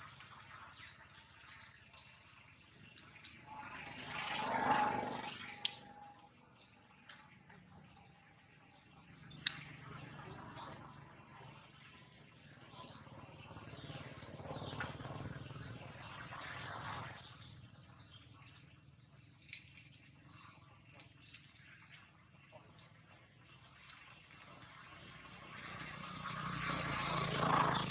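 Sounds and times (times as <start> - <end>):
small bird chirping: 5.6 - 16.9, 17.9 - 22.8
sharp ticks: 9.4 - 9.8.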